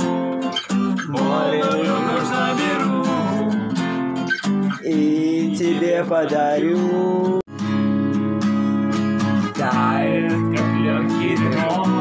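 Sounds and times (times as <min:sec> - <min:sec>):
acoustic guitar strumming: 0:00.0 - 0:12.0
man singing: 0:01.0 - 0:03.9, 0:04.7 - 0:07.5, 0:09.5 - 0:12.0.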